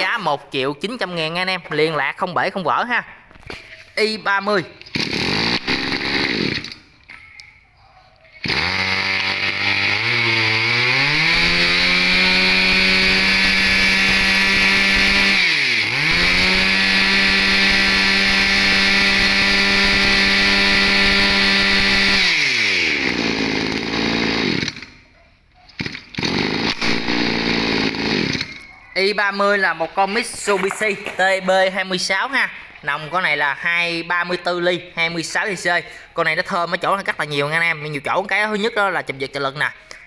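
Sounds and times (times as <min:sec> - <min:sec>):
brush cutter engine revving: 0:04.8 - 0:06.8, 0:08.4 - 0:25.0, 0:25.8 - 0:31.4.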